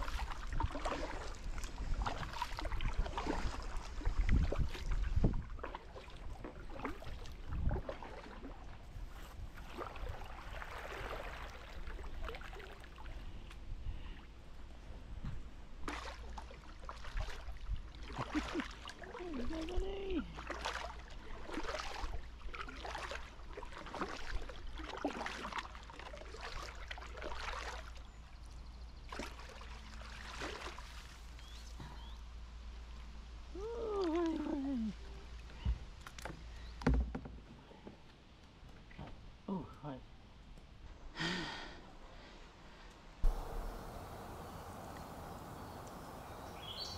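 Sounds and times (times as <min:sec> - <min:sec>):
kayak paddle splashing: 0:00.0 - 0:13.5, 0:15.7 - 0:28.1, 0:29.0 - 0:31.6, 0:43.2 - 0:46.9
water trickling off paddle: 0:00.0 - 0:13.6, 0:15.9 - 0:28.0, 0:43.2 - 0:46.9.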